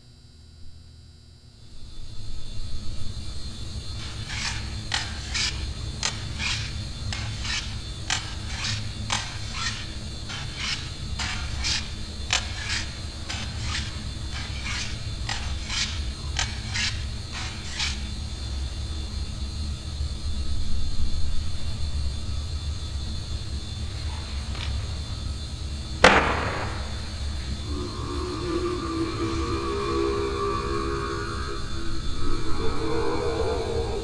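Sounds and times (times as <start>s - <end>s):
rasping scrapes: 4.0s - 18.1s.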